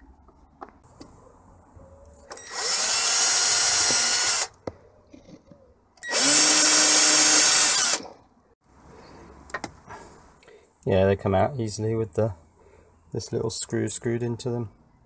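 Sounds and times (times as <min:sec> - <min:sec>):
cordless drill drilling plastic: 0:02.3 - 0:04.5, 0:06.0 - 0:08.1.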